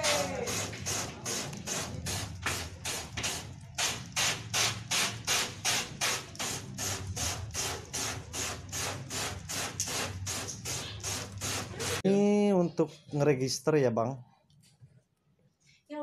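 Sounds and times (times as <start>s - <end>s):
spray bottle squirting: 0.0s - 12.0s.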